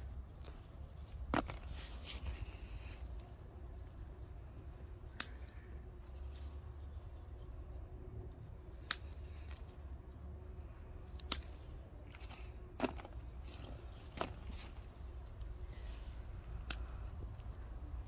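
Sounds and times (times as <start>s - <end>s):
scissors snipping stems: 5.0s - 5.7s, 8.6s - 9.6s, 11.1s - 14.9s, 16.4s - 18.0s.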